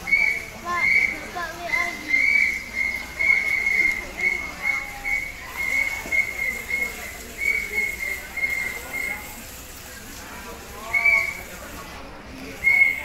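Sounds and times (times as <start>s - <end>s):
short high whistle blasts: 0.0s - 9.4s, 12.6s - 13.0s
faint voices: 0.0s - 13.0s.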